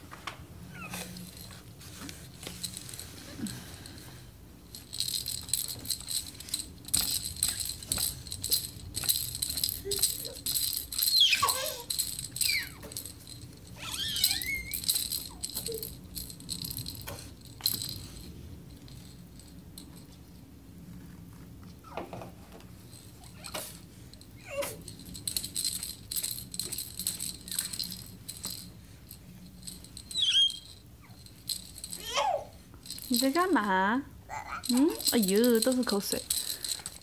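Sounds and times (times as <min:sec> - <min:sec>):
plastic toy rattling: 0:04.7 - 0:18.2, 0:22.9 - 0:28.7, 0:29.5 - 0:33.8, 0:34.4 - 0:37.0
toddler squealing: 0:09.9 - 0:12.9, 0:13.8 - 0:15.8, 0:23.2 - 0:23.6, 0:24.4 - 0:24.8, 0:30.1 - 0:31.2, 0:32.0 - 0:32.6, 0:34.3 - 0:34.7.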